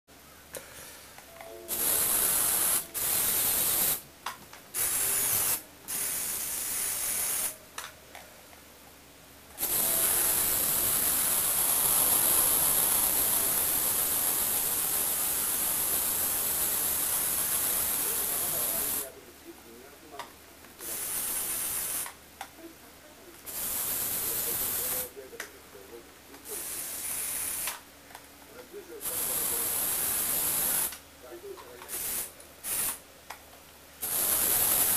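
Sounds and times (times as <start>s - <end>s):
toy motor whirring whine: 1.7s - 4.0s, 4.8s - 7.6s, 9.6s - 19.0s.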